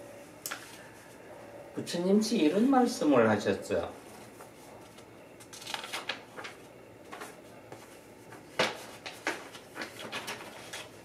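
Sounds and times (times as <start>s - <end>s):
paper sheets rustling: 4.0s - 11.0s.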